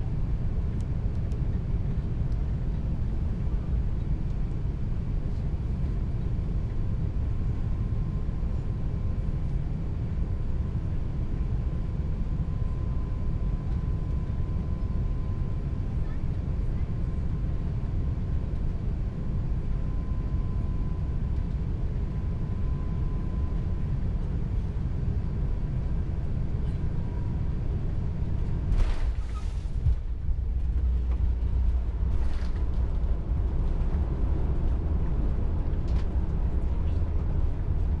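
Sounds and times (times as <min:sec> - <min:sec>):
airliner cabin rumble: 0:00.0 - 0:38.0.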